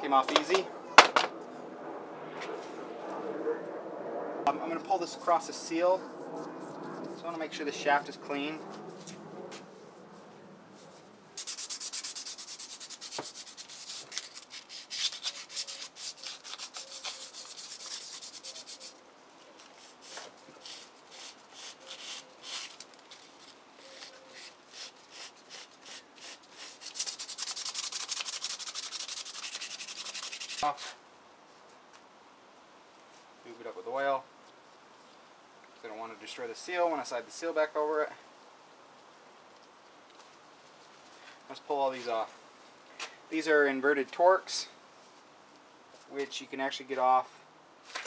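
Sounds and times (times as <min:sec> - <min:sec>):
hand rubbing metal shaft: 0:10.8 - 0:19.0.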